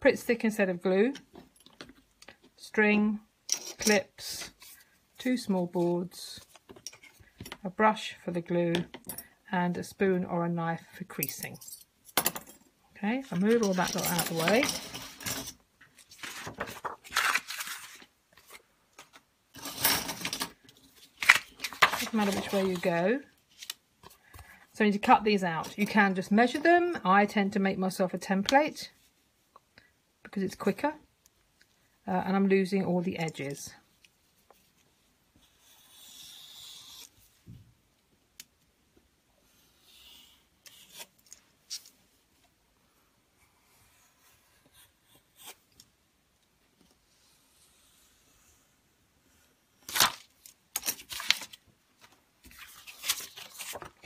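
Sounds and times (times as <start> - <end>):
paper rustling and scraping: 13.3 - 23.8, 49.8 - 54.0
craft knife cutting paper: 35.4 - 37.1.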